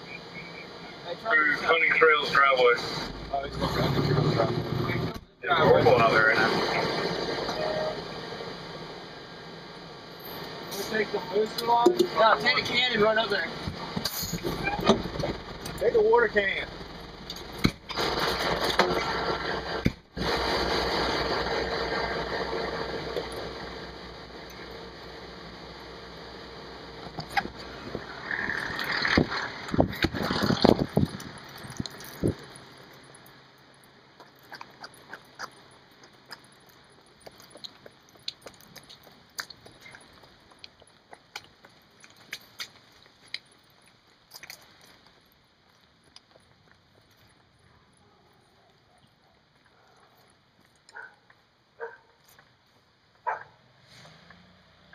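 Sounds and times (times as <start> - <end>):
engine pulsing: 0.0 - 43.9
hiss of rain and road: 6.0 - 17.4, 18.0 - 34.2, 53.5 - 54.9.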